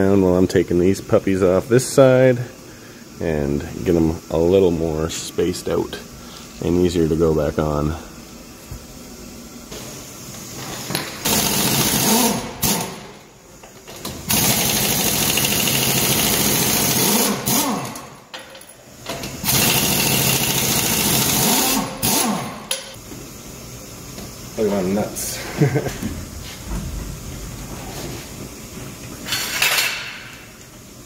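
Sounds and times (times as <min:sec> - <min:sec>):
impact wrench spinning lug nuts: 0:10.7 - 0:13.2, 0:13.8 - 0:18.2, 0:19.1 - 0:23.0.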